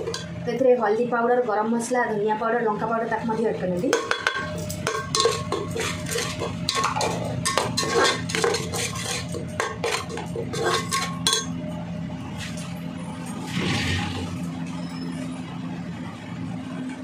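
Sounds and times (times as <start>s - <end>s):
spoon scraping cooking pan: 0.0s - 0.3s, 3.9s - 11.5s
steady low hum: 0.0s - 17.0s.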